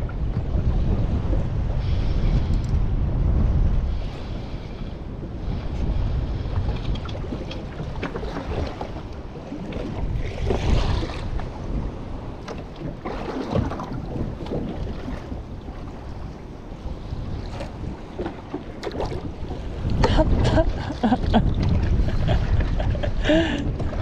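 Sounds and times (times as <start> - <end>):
wind buffeting microphone: 0.0 - 24.0
water slapping against hull: 5.5 - 24.0.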